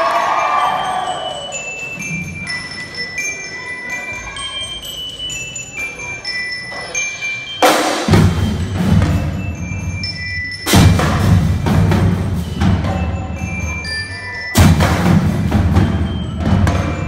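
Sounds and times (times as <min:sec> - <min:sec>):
bell-like struck notes: 0:00.0 - 0:17.0
bass and snare drumming: 0:07.6 - 0:13.8, 0:14.6 - 0:17.0
cymbal crash: 0:10.7 - 0:12.5.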